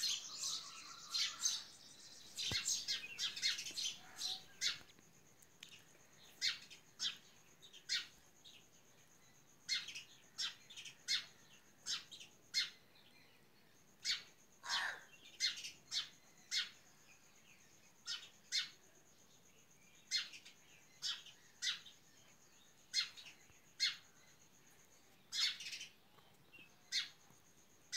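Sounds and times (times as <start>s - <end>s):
bird chirping: 0.0s - 27.9s.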